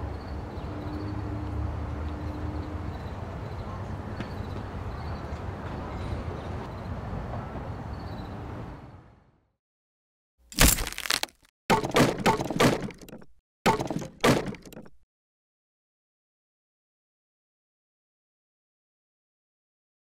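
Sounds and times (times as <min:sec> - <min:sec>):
outdoor background noise: 0:00.0 - 0:09.5
wooden crate cracking and splintering: 0:10.5 - 0:13.0.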